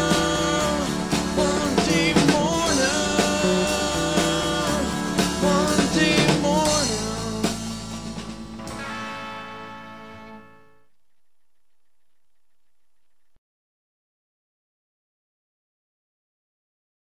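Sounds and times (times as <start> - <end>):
rock band playing: 0.0 - 10.8.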